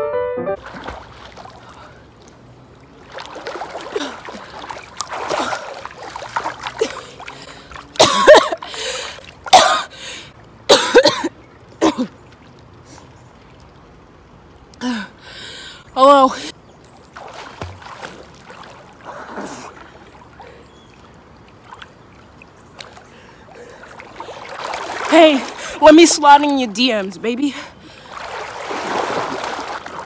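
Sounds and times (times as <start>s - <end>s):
soft water sounds: 0.6s - 30.0s
person coughing: 8.0s - 8.7s, 9.5s - 9.9s, 10.7s - 12.1s.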